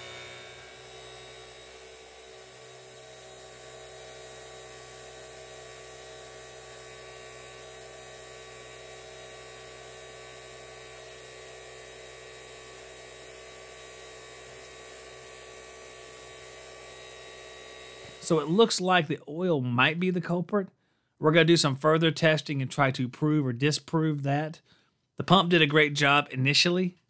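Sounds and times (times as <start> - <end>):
vacuum pump humming: 0.0 - 18.8.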